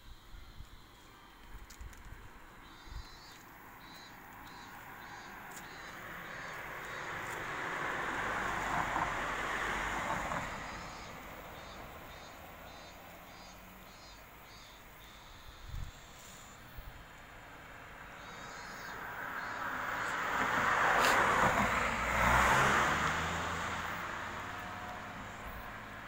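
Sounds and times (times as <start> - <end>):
vehicle passing: 4.4 - 13.9, 17.6 - 26.0.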